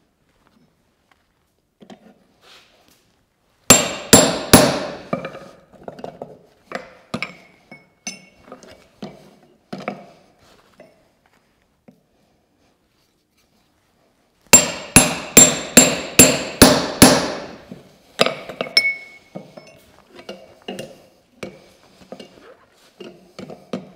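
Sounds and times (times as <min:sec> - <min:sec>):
hammer blows on hot steel: 0:03.7 - 0:05.2, 0:14.5 - 0:19.8
metallic ring: 0:07.2 - 0:08.5, 0:18.6 - 0:20.0.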